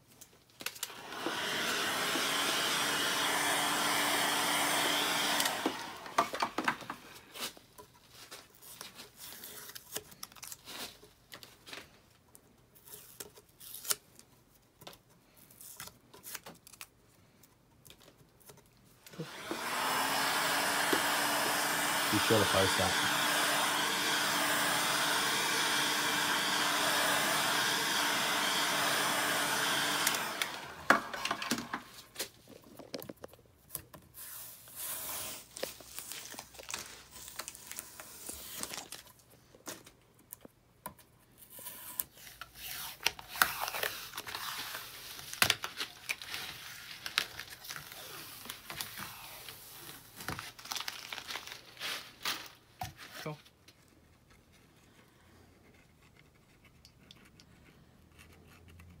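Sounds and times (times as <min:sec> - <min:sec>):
heat gun blowing: 0:00.9 - 0:06.6, 0:19.1 - 0:32.1, 0:34.3 - 0:36.4
sticker crackling and tearing: 0:35.1 - 0:39.1.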